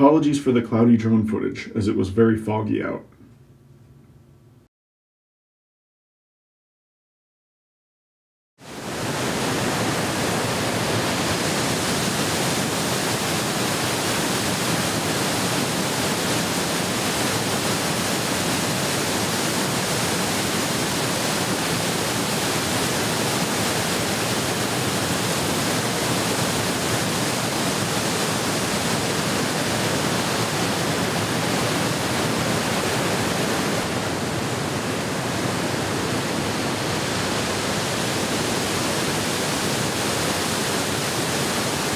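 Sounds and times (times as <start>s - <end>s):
stream water rushing: 8.7s - 41.9s.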